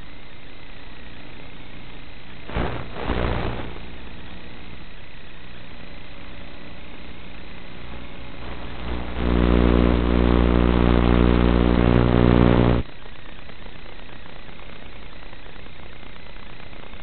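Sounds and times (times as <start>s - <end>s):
radio interference buzz: 2.4s - 12.9s.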